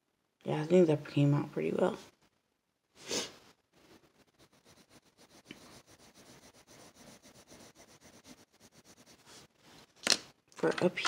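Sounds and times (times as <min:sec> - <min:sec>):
hand brushing paper: 0:03.1 - 0:09.9
pencil scratching on paper: 0:03.8 - 0:09.6.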